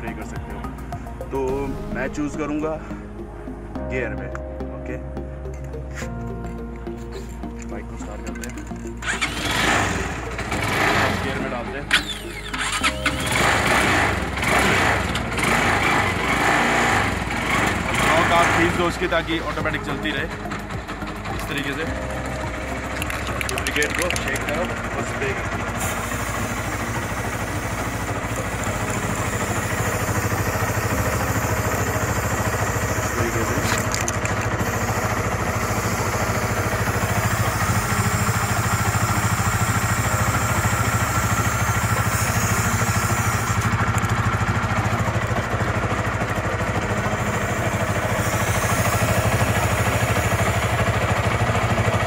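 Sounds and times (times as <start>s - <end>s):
motorcycle engine idling: 8.0s - 52.0s
aerosol spray hissing: 25.8s - 43.8s, 47.2s - 50.9s.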